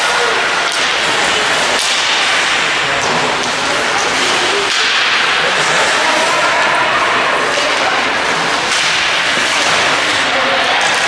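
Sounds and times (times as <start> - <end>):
ice rink crowd noise: 0.0 - 11.0
sharp clacks on ice: 0.6 - 5.3, 8.6 - 11.0.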